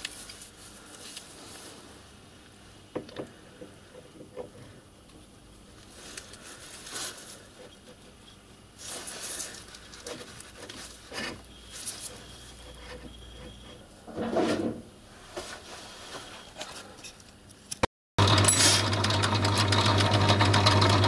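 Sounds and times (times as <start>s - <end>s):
metal parts scuffing and rubbing: 8.8s - 17.3s.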